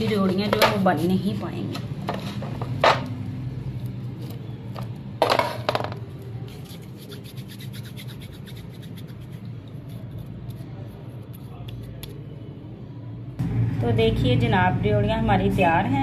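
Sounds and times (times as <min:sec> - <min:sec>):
steady low hum: 0:06.2 - 0:16.0.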